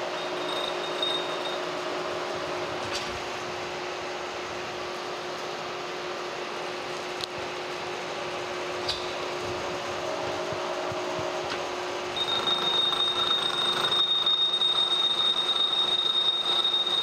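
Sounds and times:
high-pitched cutter whine: 0.0s - 2.2s, 10.0s - 17.0s
milling machine running: 0.0s - 17.0s.

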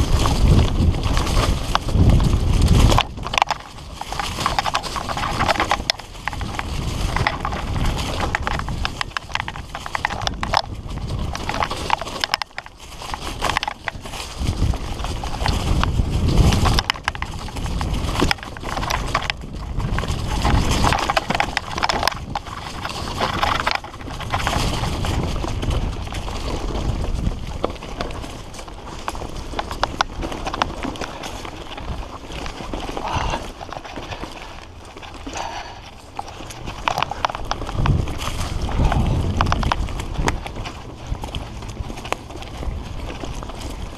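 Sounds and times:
bike rattling and clattering: 0.0s - 43.9s
bike tyres rumbling over dirt: 0.0s - 43.9s.

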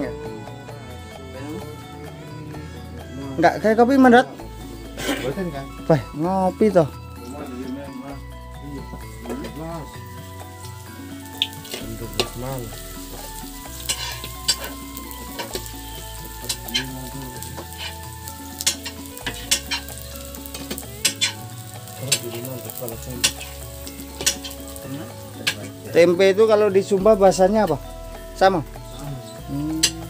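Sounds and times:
food sizzling in a wok: 4.4s - 30.0s
metal spatula scraping a wok: 13.0s - 15.6s, 16.7s - 21.4s, 23.2s - 24.8s.

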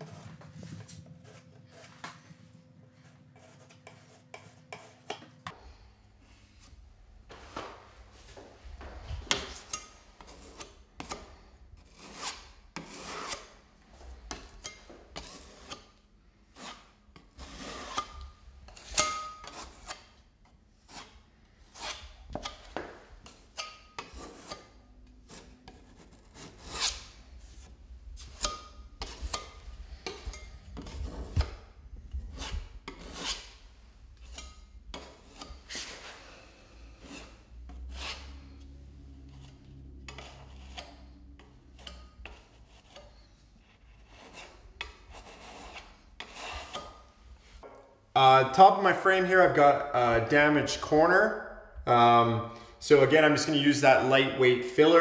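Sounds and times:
putty knife scraping wood: 3.1s - 5.6s, 9.3s - 13.6s, 14.3s - 20.2s, 20.8s - 36.2s, 37.0s - 38.6s, 39.2s - 47.6s.

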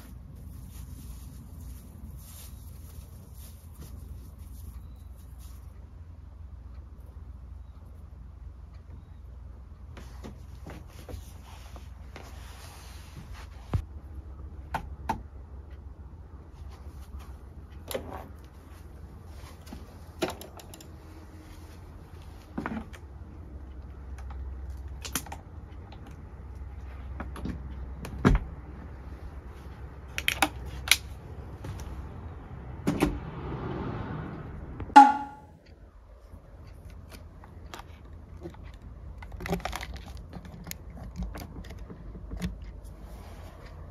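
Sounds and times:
low steady hum: 0.0s - 32.8s, 34.3s - 43.9s
ringing knock: 35.0s - 35.5s.

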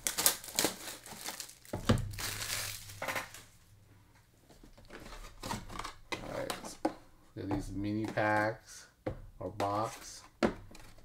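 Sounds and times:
plastic wrap crinkling: 0.0s - 3.6s
cardboard rustling: 4.5s - 6.9s.

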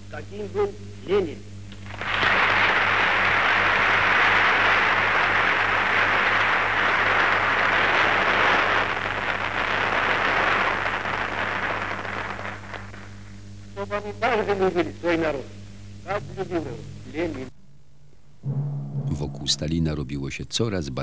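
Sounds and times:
low hum: 0.0s - 21.0s
audience applauding: 1.8s - 12.6s.

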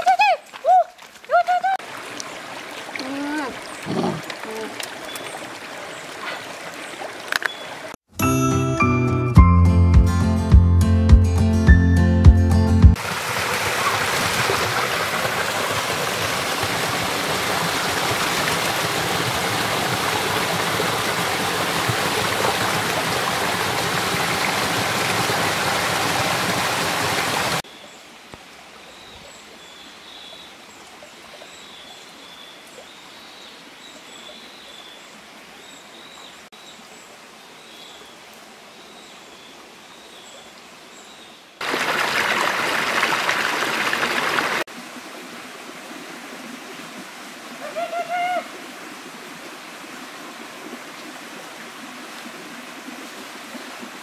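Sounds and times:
stream cascading over rocks: 1.8s - 8.0s, 13.0s - 28.8s, 41.6s - 54.0s
waterfall splashing into pool: 13.0s - 27.7s, 41.6s - 45.6s.

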